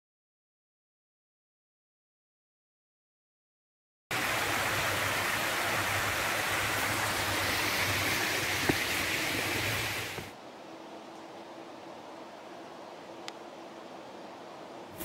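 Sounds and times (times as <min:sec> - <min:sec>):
creek water rushing: 0:04.1 - 0:10.4.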